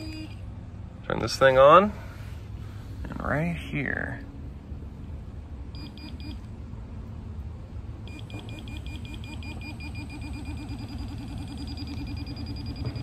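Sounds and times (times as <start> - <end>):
metal detector beeping: 5.8 - 6.4, 8.1 - 13.0.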